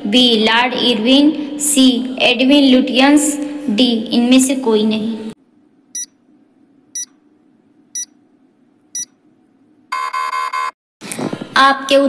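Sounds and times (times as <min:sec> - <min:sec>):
short electronic beeps: 0:06.0 - 0:06.2, 0:09.0 - 0:09.2.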